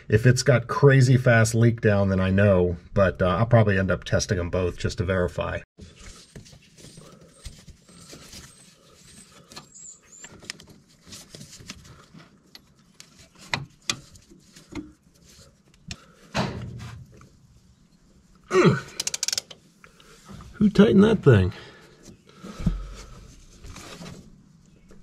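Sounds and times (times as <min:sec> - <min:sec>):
metal fittings clicking and knocking: 0:19.0 - 0:19.6.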